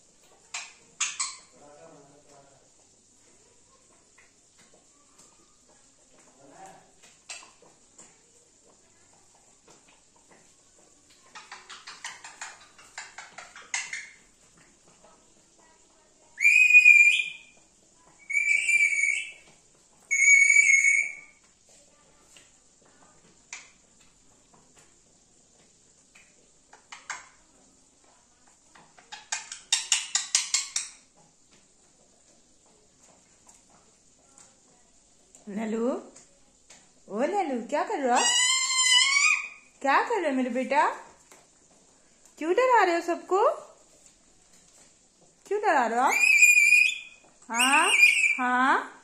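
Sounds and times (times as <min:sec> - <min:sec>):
parakeet chattering: 0:00.5 - 0:01.6, 0:11.3 - 0:14.3, 0:16.4 - 0:17.6, 0:18.2 - 0:19.5, 0:20.1 - 0:21.4, 0:29.0 - 0:31.1, 0:38.1 - 0:39.7, 0:46.0 - 0:48.4
parakeet whistled calls: 0:16.4 - 0:17.6, 0:18.2 - 0:19.5, 0:20.1 - 0:21.4, 0:38.2 - 0:39.6, 0:46.1 - 0:48.4.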